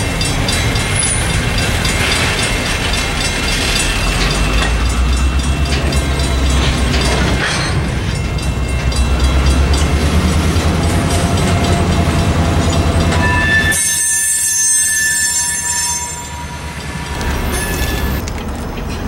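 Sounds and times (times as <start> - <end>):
wheels clacking over rails: 0.0 - 13.8
train wheels rumbling: 0.0 - 19.0.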